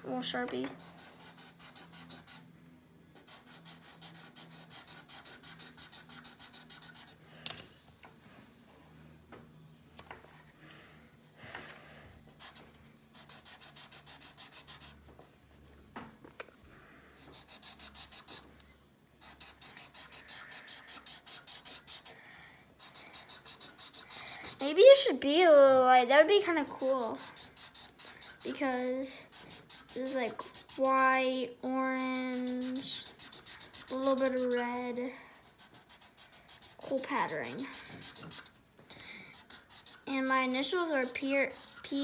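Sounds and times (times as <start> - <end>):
marker scratching on paper: 0.2 - 2.5, 3.2 - 7.2, 12.3 - 15.0, 17.2 - 18.6, 19.2 - 25.3, 26.5 - 38.6, 39.3 - 42.0.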